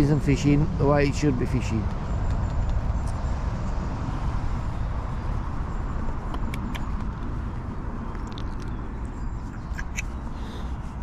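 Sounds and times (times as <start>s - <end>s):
wind buffeting microphone: 0.0s - 11.0s
faint high clicks or chirps: 1.8s - 3.2s, 6.3s - 7.2s, 8.1s - 10.2s.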